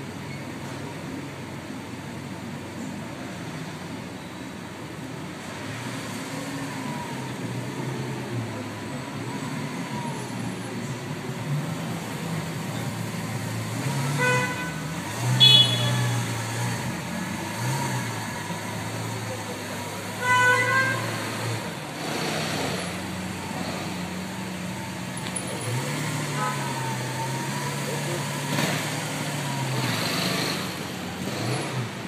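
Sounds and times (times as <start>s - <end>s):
car horn: 13.9s - 16.4s, 20.1s - 21.6s, 25.7s - 27.1s.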